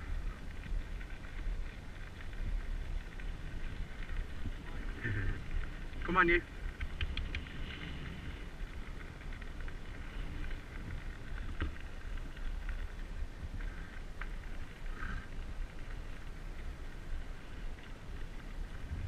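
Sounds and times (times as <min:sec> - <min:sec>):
bicycle tyres on gravel: 0:00.0 - 0:19.0
faint clicks: 0:00.0 - 0:19.0
wind on microphone: 0:18.2 - 0:19.0.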